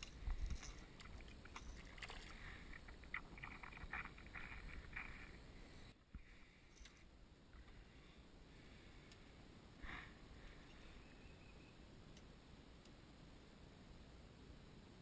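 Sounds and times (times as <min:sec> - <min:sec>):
water splashing and dripping: 0:00.0 - 0:05.1.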